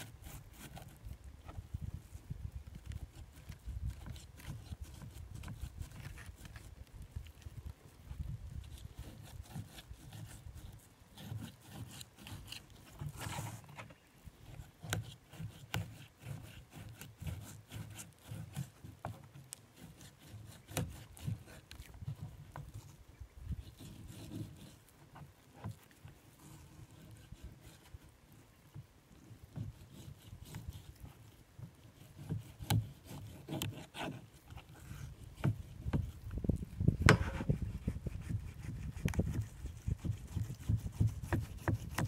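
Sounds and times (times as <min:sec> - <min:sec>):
knife scraping cutting board: 0:37.0 - 0:38.8.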